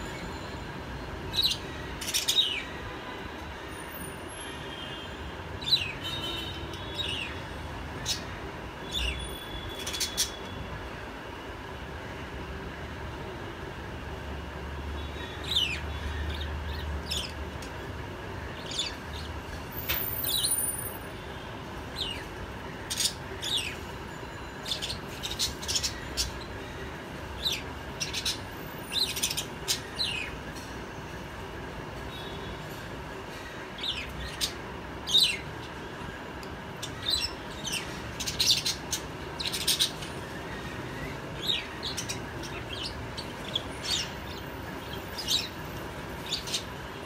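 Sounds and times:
steady background hum: 0.0s - 47.0s
parrots chirping: 36.8s - 45.6s.

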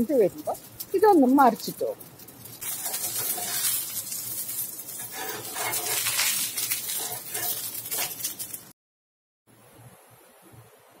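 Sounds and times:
oil sizzling on a griddle: 0.0s - 8.8s
metal spatula scraping griddle: 2.2s - 8.7s.

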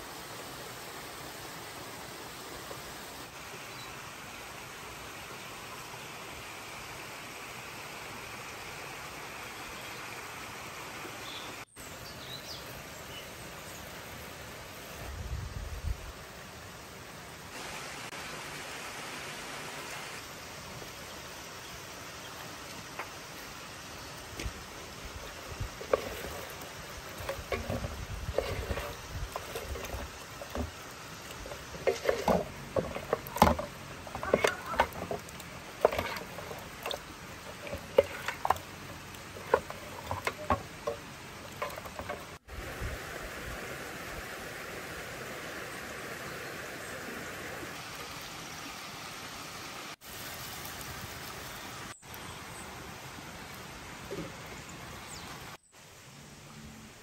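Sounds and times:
sizzling hiss: 0.0s - 56.7s
spoon scraping metal pot: 25.8s - 42.4s.

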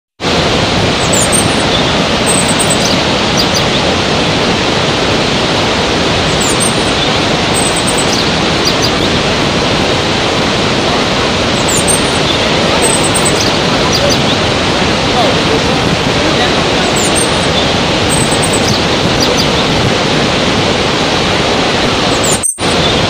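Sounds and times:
water rushing: 0.2s - 23.0s
faint high chirps: 1.0s - 3.7s, 6.3s - 9.1s, 11.6s - 14.2s, 16.9s - 19.5s, 22.1s - 22.9s.

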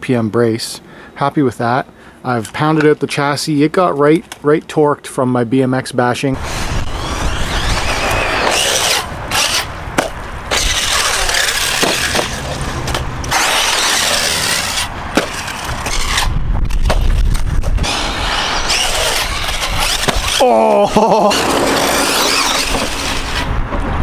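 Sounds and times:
tyres on dirt and gravel: 0.0s - 24.0s
electric motor whine: 6.4s - 9.9s, 10.5s - 16.3s, 17.2s - 23.5s.

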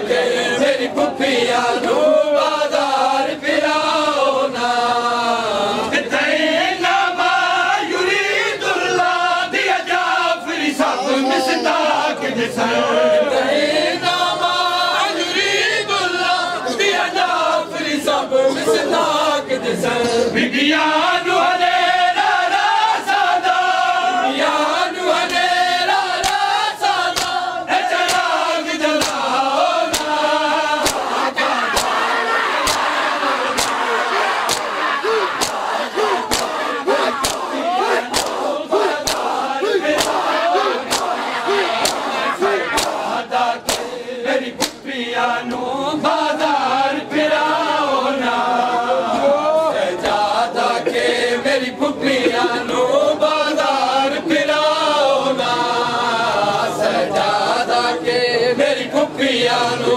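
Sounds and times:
men chanting together: 0.0s - 59.9s
hands slapping bare chests: 26.2s - 27.4s, 28.0s - 28.4s, 29.0s - 44.8s.

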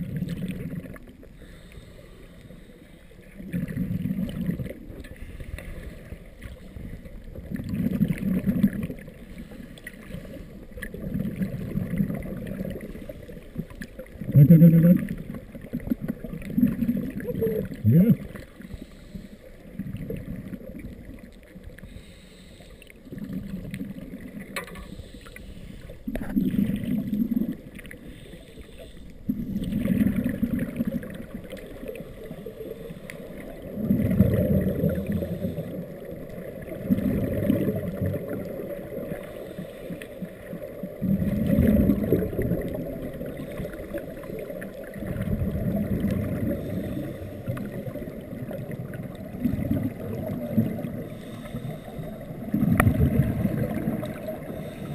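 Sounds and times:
underwater regulator bubbles: 0.0s - 54.9s.

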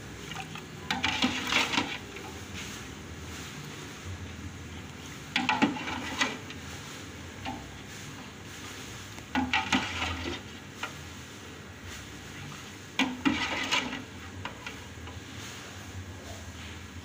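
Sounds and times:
metal ladle scraping pot: 0.3s - 2.4s, 5.3s - 7.8s, 9.2s - 11.0s, 13.0s - 15.2s.

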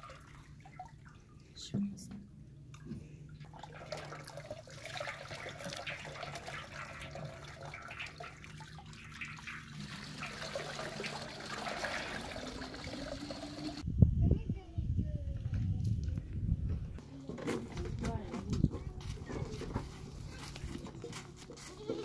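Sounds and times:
water splashing into metal basin: 3.4s - 13.8s
water trickling over chicken: 3.4s - 13.8s.

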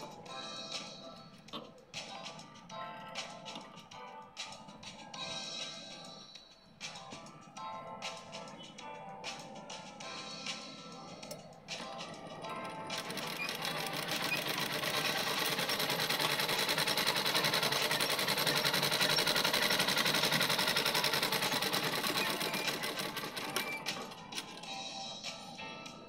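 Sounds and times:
sewing machine rattling: 11.8s - 24.6s.

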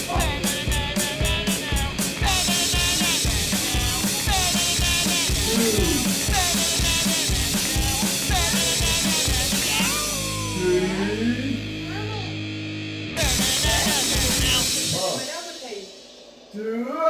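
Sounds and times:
fast drum beat: 0.0s - 10.6s, 13.2s - 16.1s
rock music: 0.0s - 16.5s.

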